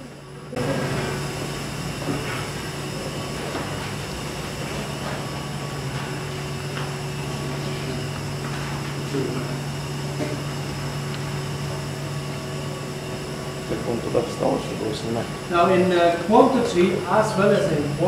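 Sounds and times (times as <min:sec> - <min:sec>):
machinery humming: 0:00.0 - 0:18.0.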